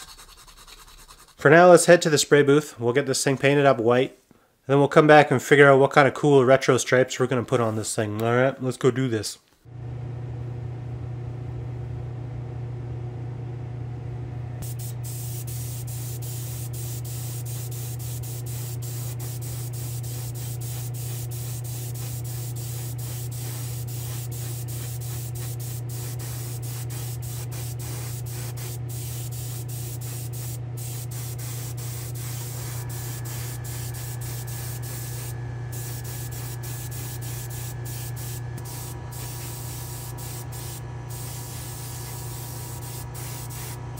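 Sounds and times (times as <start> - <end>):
steady low hum: 9.7 - 43.9
airbrush spraying hiss: 14.6 - 43.8.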